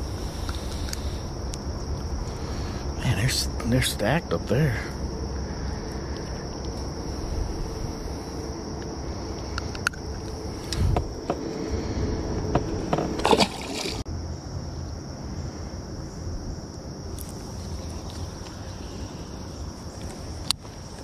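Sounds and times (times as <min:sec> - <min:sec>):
high insect drone: 0:00.0 - 0:21.0
low rumble: 0:04.7 - 0:14.4.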